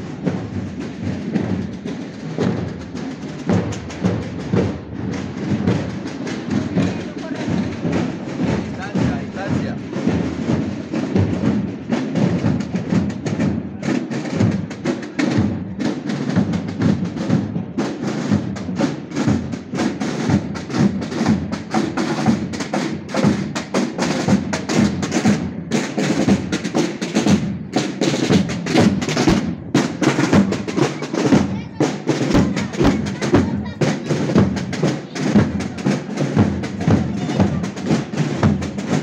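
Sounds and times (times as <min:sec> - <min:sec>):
snare drums marching rhythm: 0:00.0 - 0:39.0
bass drum beating: 0:24.2 - 0:39.0.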